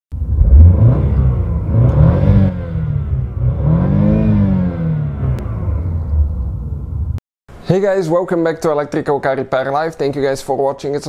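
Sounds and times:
car engine revving: 0.2s - 7.2s.

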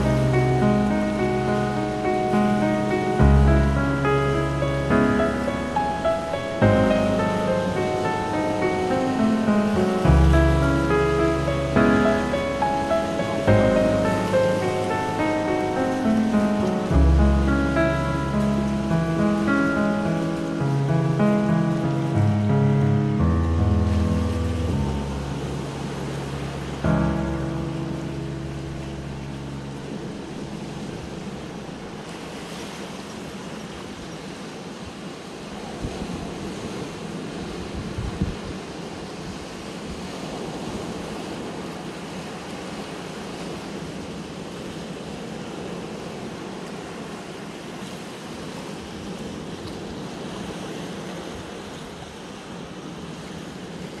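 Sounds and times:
held music chord: 0.0s - 32.1s
ocean waves washing on beach: 0.0s - 54.0s.

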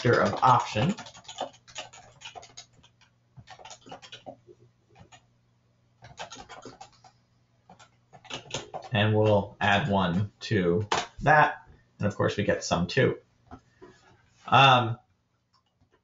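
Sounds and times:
computer keyboard typing: 0.0s - 5.3s, 6.0s - 9.4s, 15.5s - 16.0s.

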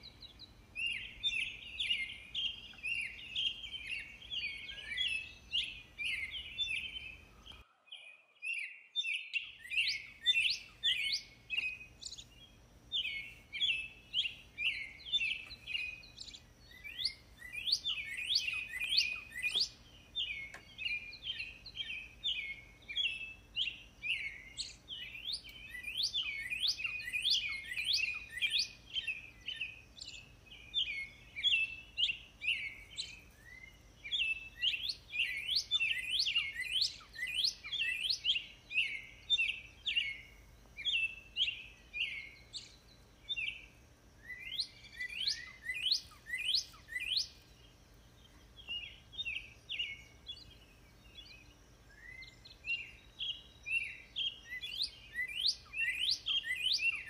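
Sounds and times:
songbirds chirping: 0.0s - 57.0s.

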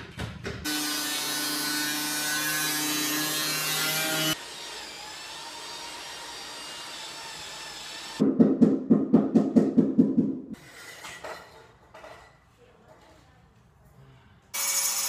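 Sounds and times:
power tool high whine: 0.7s - 8.2s.

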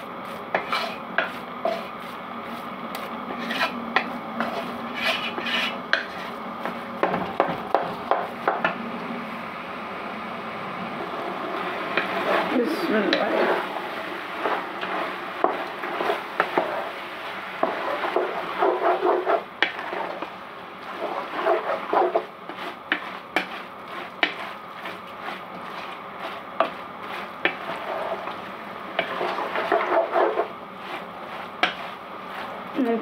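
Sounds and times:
spatula knocking pan: 0.5s - 1.9s, 3.0s - 8.8s, 14.8s - 16.7s, 17.6s - 20.3s, 21.0s - 27.9s, 28.9s - 32.6s
spatula scraping metal pot: 0.5s - 2.6s, 3.3s - 6.4s, 12.0s - 13.7s, 14.4s - 17.0s, 17.6s - 32.9s
meat sizzling: 11.0s - 33.0s.

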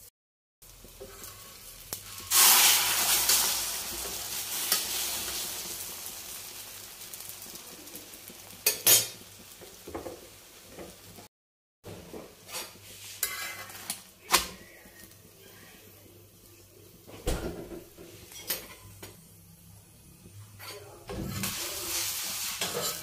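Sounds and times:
egg sizzling on hot pan: 0.6s - 11.3s, 12.4s - 15.3s, 18.0s - 23.0s
metal spatula scraping pan: 12.4s - 14.5s, 20.5s - 23.0s.

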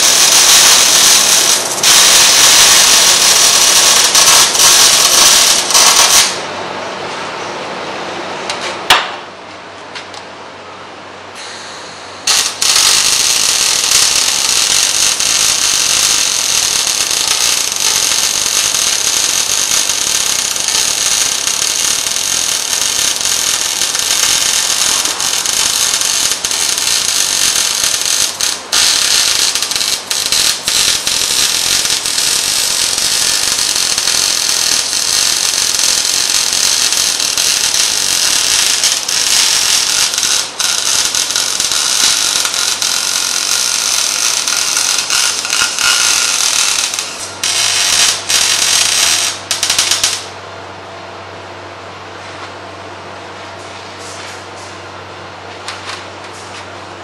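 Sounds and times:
welding arc crackling: 0.0s - 6.4s, 12.2s - 50.4s.

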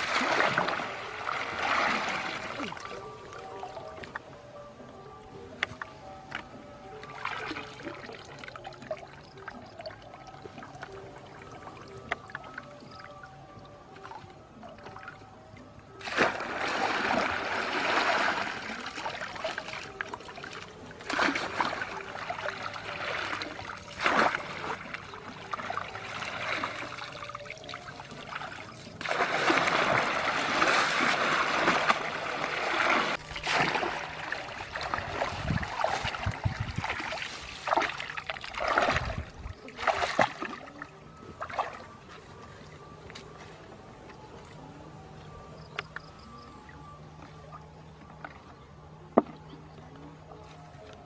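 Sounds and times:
muddy water splashing: 0.0s - 4.3s, 6.9s - 13.2s, 15.9s - 44.7s.

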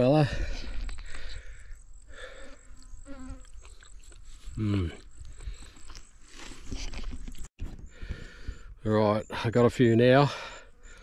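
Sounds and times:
flies buzzing: 0.9s - 7.1s.

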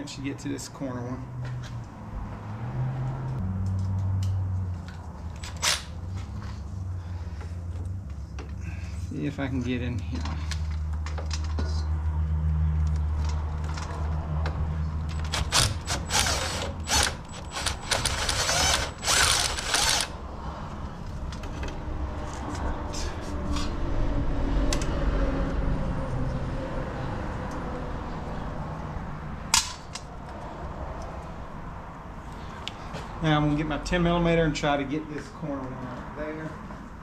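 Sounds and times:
hand ratchet clicking: 15.1s - 20.1s.

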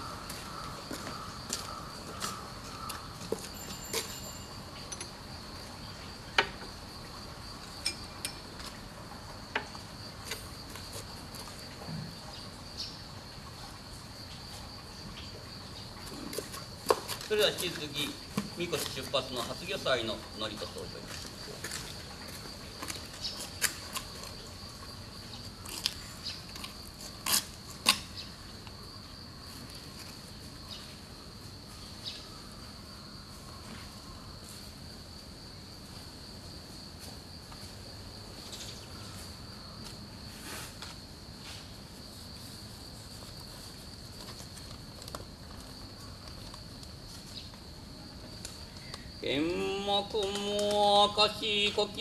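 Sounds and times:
insect trilling: 48.5s - 52.0s.

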